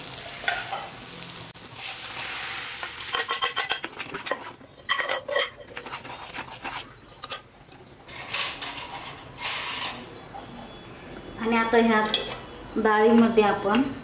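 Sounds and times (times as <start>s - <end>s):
food sizzling: 0.0s - 4.6s
spoon clinking and scraping pan: 0.4s - 1.0s, 2.8s - 7.5s.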